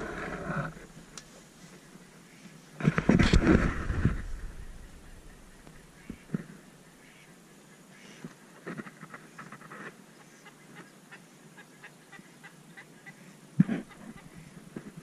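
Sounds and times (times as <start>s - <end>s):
ducks quacking: 4.4s - 7.3s, 10.2s - 14.8s.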